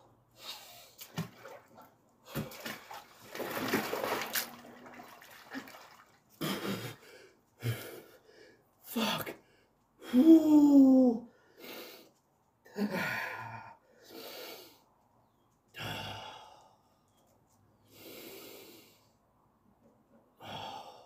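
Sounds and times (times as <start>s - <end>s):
man breathing heavily: 6.4s - 10.7s, 11.3s - 14.9s, 15.8s - 16.9s, 17.8s - 19.2s, 20.4s - 21.0s.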